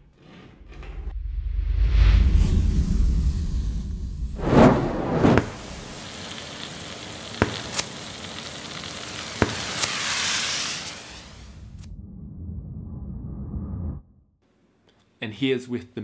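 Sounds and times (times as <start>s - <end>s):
blowtorch hissing: 4.4s - 11.6s
sharp crackles: 4.4s - 11.9s
sugar sizzling: 4.5s - 11.5s.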